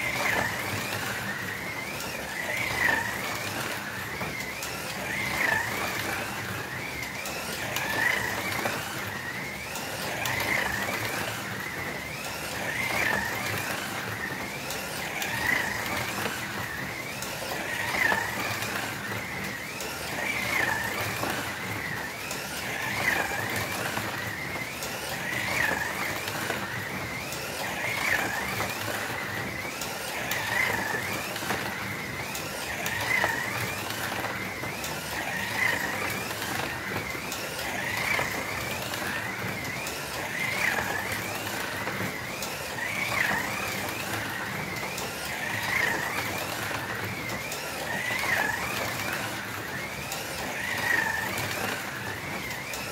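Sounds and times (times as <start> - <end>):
slot cars motor whine: 0.0 - 52.9.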